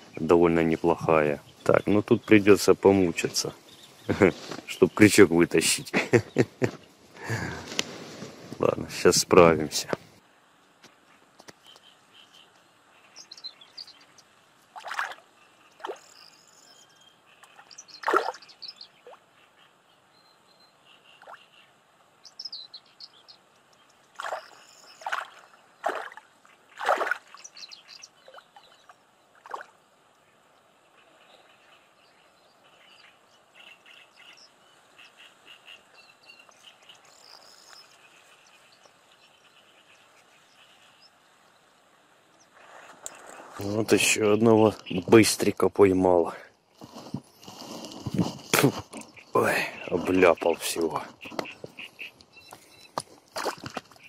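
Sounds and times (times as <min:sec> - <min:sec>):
birds chirping: 0:00.0 - 0:10.2, 0:10.9 - 0:54.0
frogs calling: 0:11.0 - 0:20.1, 0:20.7 - 0:23.4, 0:24.1 - 0:41.4, 0:48.4 - 0:54.0.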